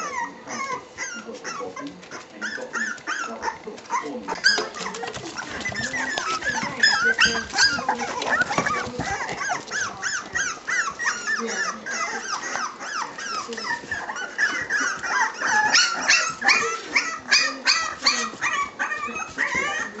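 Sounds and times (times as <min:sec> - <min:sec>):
puppies squeaking and whimpering: 0:00.0 - 0:20.0.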